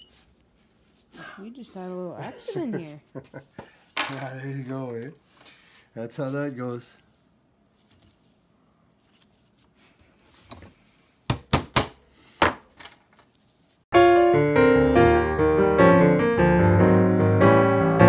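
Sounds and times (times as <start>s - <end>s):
piano music: 13.9s - 18.0s.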